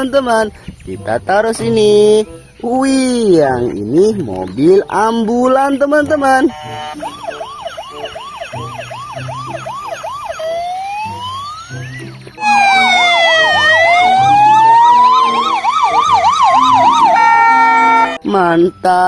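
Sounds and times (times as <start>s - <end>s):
soft background music: 0.0s - 19.0s
toy electronic siren wailing: 6.3s - 18.2s
ambulance siren: 6.3s - 18.8s.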